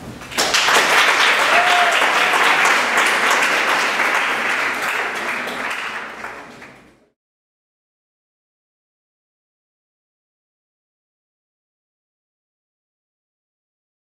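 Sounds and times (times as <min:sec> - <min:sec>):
audience applauding: 0:00.2 - 0:07.1.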